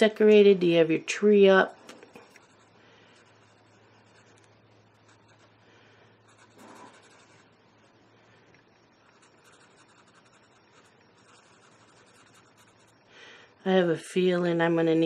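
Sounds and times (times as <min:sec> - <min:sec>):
low steady hum: 0:00.0 - 0:15.0
marker scratching on paper: 0:02.2 - 0:05.5, 0:06.2 - 0:07.5, 0:09.0 - 0:13.0.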